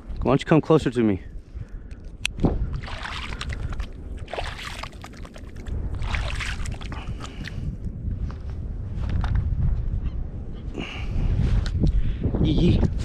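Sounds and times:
wind rumble on microphone: 0.0 - 13.0
water sloshing and splashing: 2.5 - 7.7.

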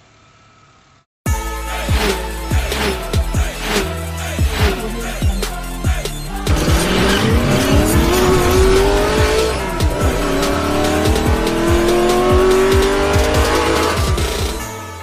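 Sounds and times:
electronic music with beat: 1.3 - 15.0
race car engine revving: 3.6 - 5.0, 6.2 - 14.7.

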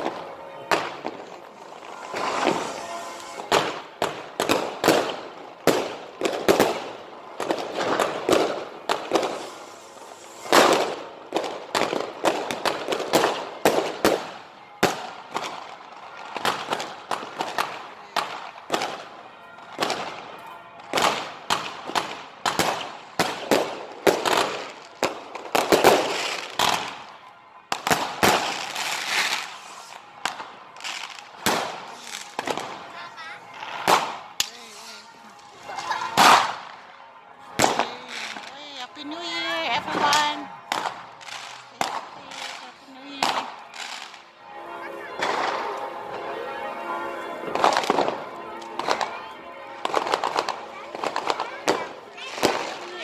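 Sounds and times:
fireworks bangs and crackles: 0.0 - 53.0.

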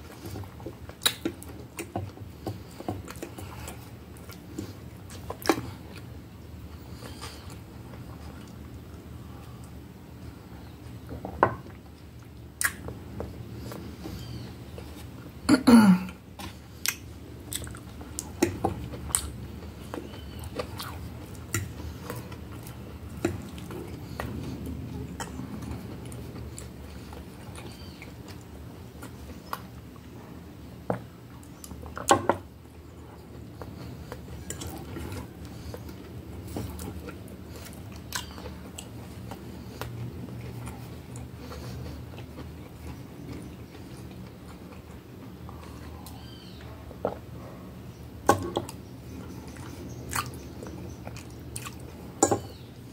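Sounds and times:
chewing and mouth sounds: 0.0 - 15.4, 16.1 - 52.9.

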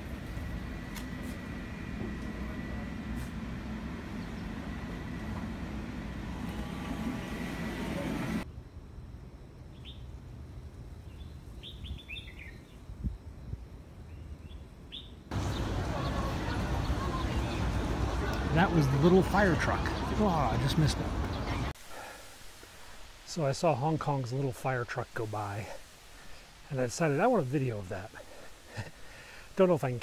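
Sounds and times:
funicular car rumbling: 0.0 - 8.4, 15.3 - 21.7
faint steady whine: 0.0 - 30.0
bird chirps: 11.1 - 12.8.

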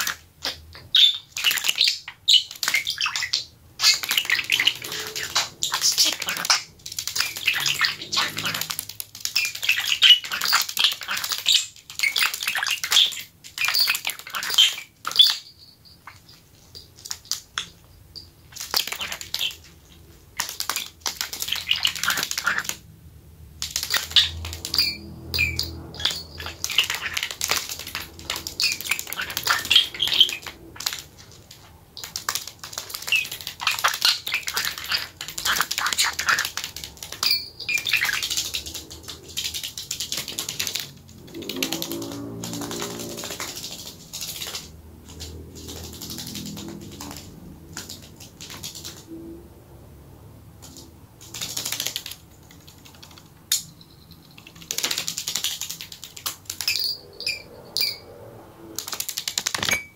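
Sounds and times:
small metal bells jingling: 15.1 - 17.0, 24.7 - 27.2, 37.2 - 37.9, 53.6 - 54.6, 56.6 - 58.1
bird feet tapping on paper: 23.5 - 49.0, 54.4 - 56.8, 58.8 - 59.8.

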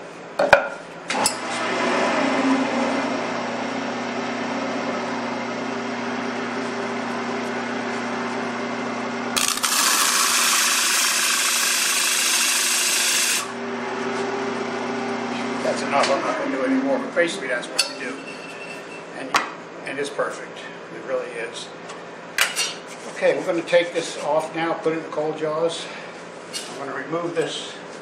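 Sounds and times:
wood lathe motor hum: 9.1 - 13.7.

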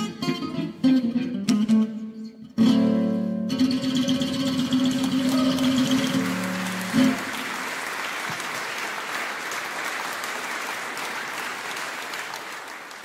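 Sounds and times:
audience applauding: 4.5 - 13.0.

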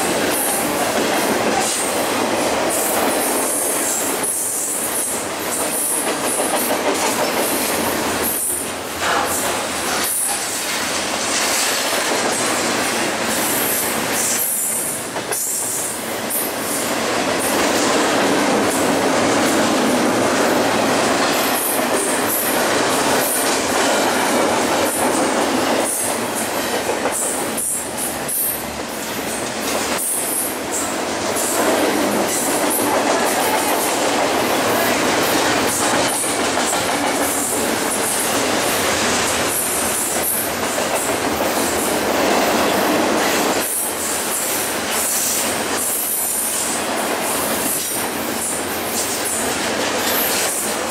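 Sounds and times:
train wheels rumbling on rail: 0.0 - 50.9.

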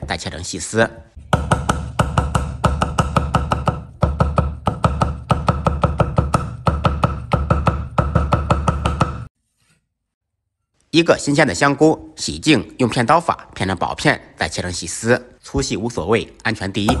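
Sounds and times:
cleaver chopping on wooden block: 1.3 - 9.3.

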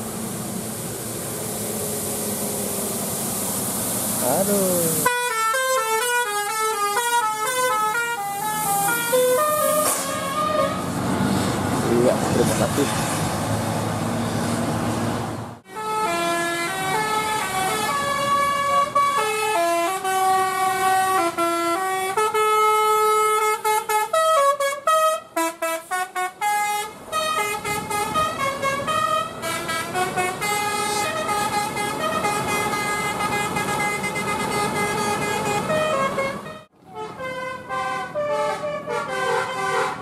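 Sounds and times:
engine and road noise: 0.0 - 40.0
bus horn playing a tune: 4.9 - 11.0, 15.6 - 40.0.

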